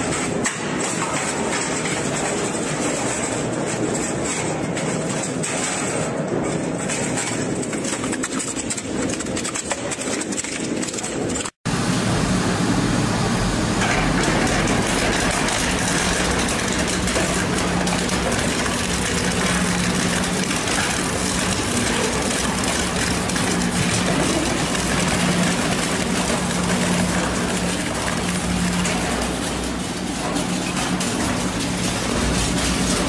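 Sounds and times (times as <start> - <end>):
low motor hum: 11.7 - 33.0
material crackling being crushed: 14.2 - 33.0.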